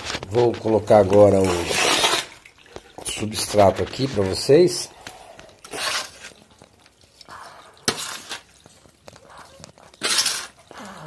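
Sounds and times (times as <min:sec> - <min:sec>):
potting soil poured into pot: 0:00.0 - 0:10.7.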